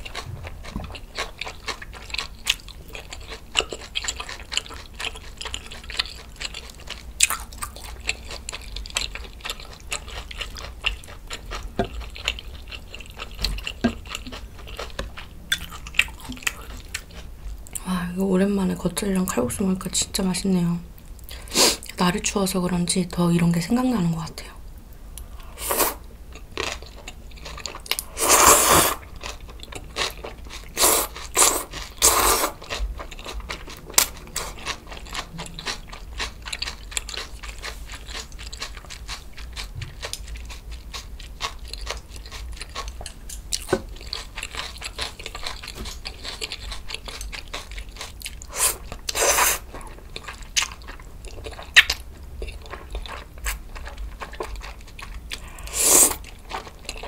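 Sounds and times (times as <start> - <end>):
wet chewing with crunches: 0.0 - 17.8, 25.2 - 57.0
noodle slurping: 28.1 - 29.0, 30.7 - 32.6, 48.5 - 49.7, 55.5 - 56.3.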